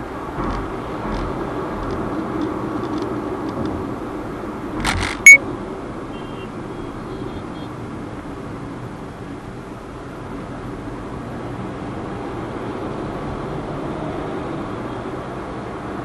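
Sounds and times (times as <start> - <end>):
car cabin road and engine noise: 0.0 - 16.0
sharp click: 4.8 - 5.4.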